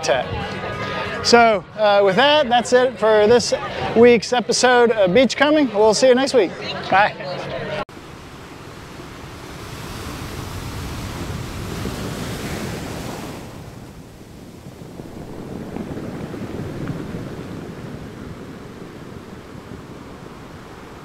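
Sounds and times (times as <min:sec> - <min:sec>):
ocean waves washing in: 0:06.5 - 0:21.0.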